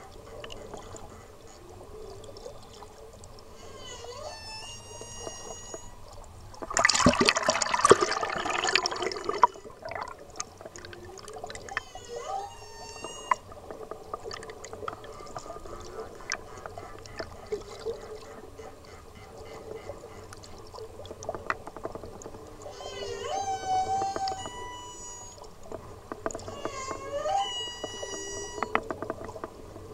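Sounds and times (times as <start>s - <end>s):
humpback whale song underwater: 0.0s - 29.9s
faint clicks: 23.9s - 27.0s, 27.7s - 29.9s.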